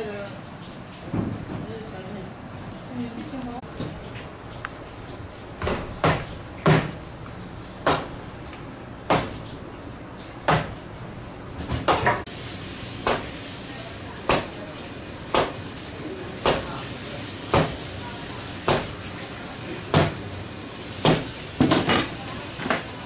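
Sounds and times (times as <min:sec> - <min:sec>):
knife chopping fish on board: 0:05.6 - 0:07.0, 0:07.8 - 0:08.2, 0:09.1 - 0:09.4, 0:10.4 - 0:10.7, 0:13.0 - 0:13.3, 0:14.3 - 0:14.6, 0:15.3 - 0:15.6, 0:16.4 - 0:16.7, 0:17.5 - 0:17.8, 0:18.6 - 0:19.0, 0:19.9 - 0:20.2, 0:21.0 - 0:22.8.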